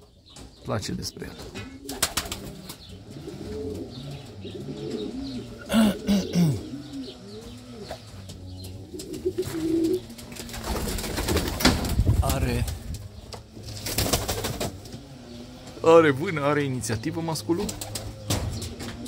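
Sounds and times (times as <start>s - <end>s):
pigeons cooing: 1.1s - 19.0s
pigeon wings fluttering: 1.9s - 2.8s, 9.0s - 12.9s, 13.7s - 14.8s, 17.6s - 18.2s.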